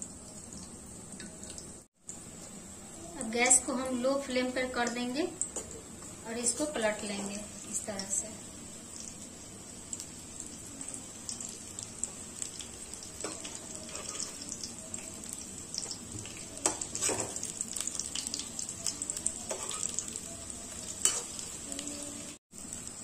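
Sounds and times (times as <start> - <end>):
frying sizzle with crackles: 0.0 - 23.0
metal spatula scraping pan: 13.2 - 14.4, 19.5 - 20.1.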